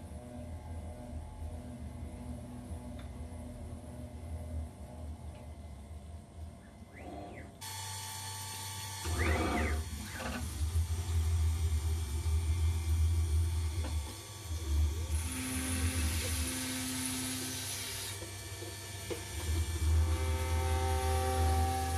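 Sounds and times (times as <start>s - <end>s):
router spindle humming: 6.7s - 21.9s
metal cutting noise: 7.0s - 21.9s.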